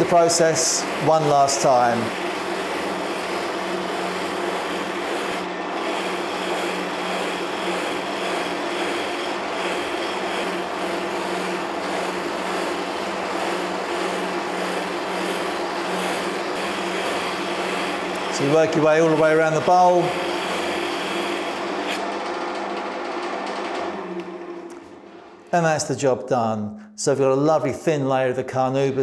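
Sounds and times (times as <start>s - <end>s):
cloth buffing wheel hissing on wood: 0.0s - 22.0s
lathe humming: 0.0s - 25.5s.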